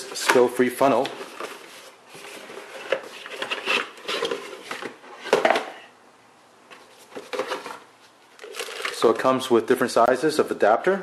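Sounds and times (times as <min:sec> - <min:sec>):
cardboard rustling: 0:00.1 - 0:05.8, 0:06.7 - 0:09.2
plastic parts clattering: 0:07.0 - 0:07.8, 0:08.4 - 0:09.2.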